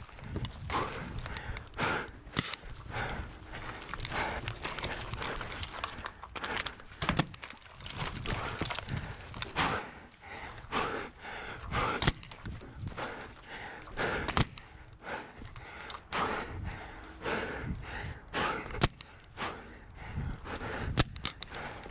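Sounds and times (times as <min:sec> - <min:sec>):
sharp clicks: 0:00.3 - 0:02.9, 0:11.9 - 0:12.6, 0:14.0 - 0:16.2, 0:18.7 - 0:19.4, 0:20.9 - 0:21.9.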